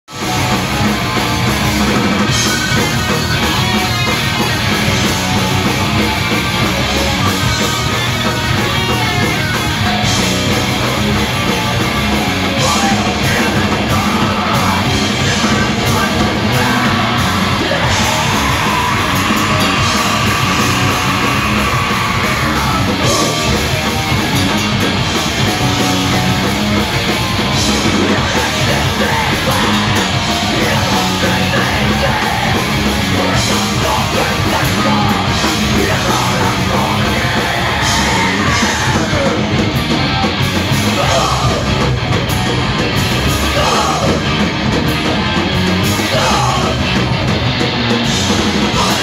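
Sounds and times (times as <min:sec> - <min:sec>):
punk rock band playing: 0:00.0 - 0:49.0
singer yelling into microphone: 0:12.5 - 0:23.7, 0:27.8 - 0:39.6, 0:40.7 - 0:41.9, 0:43.3 - 0:44.4, 0:45.8 - 0:47.2, 0:48.7 - 0:49.0.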